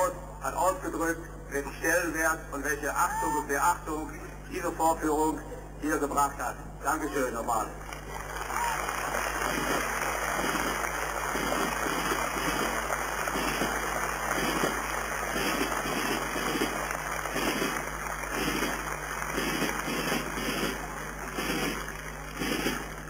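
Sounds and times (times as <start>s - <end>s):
audience applauding: 7.8s - 23.0s.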